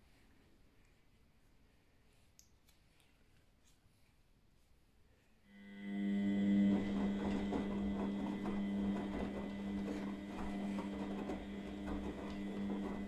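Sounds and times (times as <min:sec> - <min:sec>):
washing machine motor hum: 0:05.5 - 0:13.0
drum knocks and clicks: 0:06.8 - 0:13.0.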